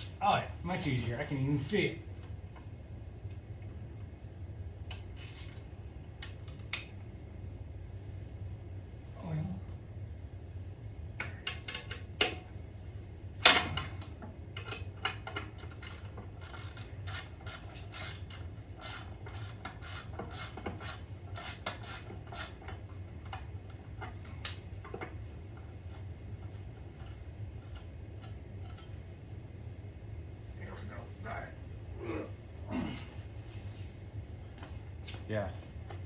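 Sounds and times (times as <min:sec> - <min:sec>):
steady low hum: 0:00.0 - 0:36.0
hand ratchet clicking: 0:15.4 - 0:22.6.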